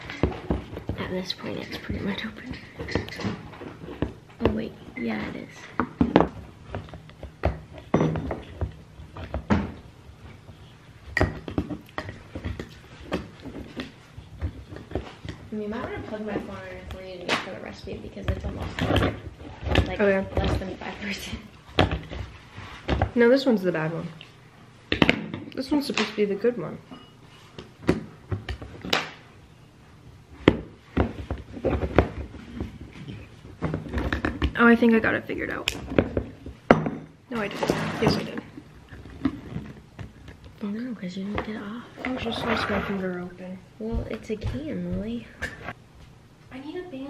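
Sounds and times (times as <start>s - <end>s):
can opener scraping: 42.1s - 43.1s.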